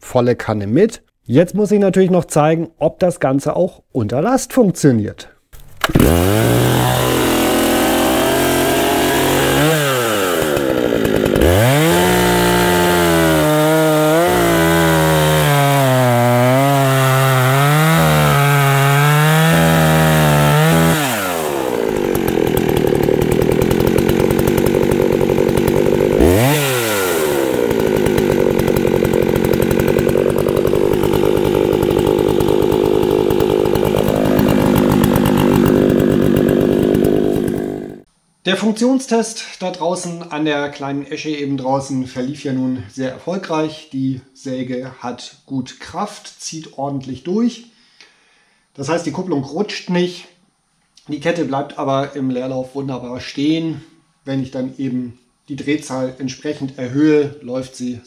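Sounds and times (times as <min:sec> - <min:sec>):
chainsaw revving and cutting wood: 0:05.8 - 0:38.1.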